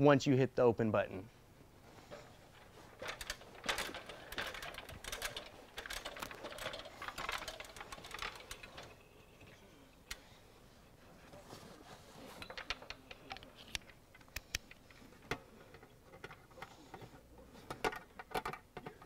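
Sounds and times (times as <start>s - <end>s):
belt gear rattling: 2.5s - 9.0s.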